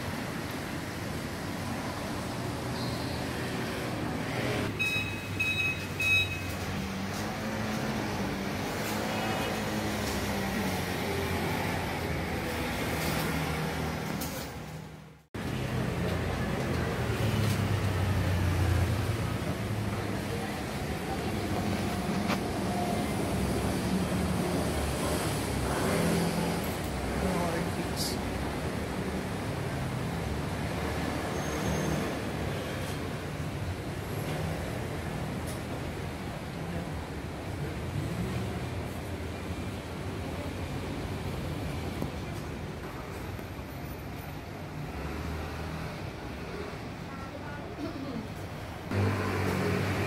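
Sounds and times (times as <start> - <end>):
street traffic noise: 0.0 - 50.0
short high electronic beeps: 4.8 - 6.5
engine hum: 48.8 - 50.0.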